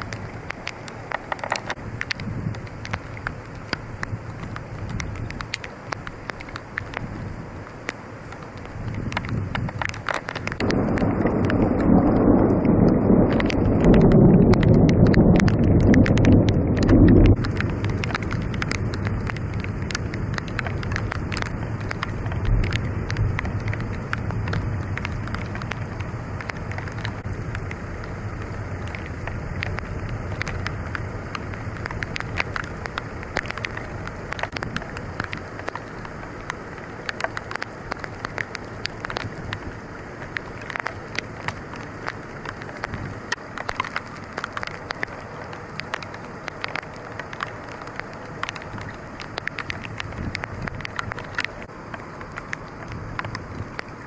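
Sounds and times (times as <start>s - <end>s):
rain falling on trees: 0.0s - 54.0s
low rumble: 10.4s - 34.9s.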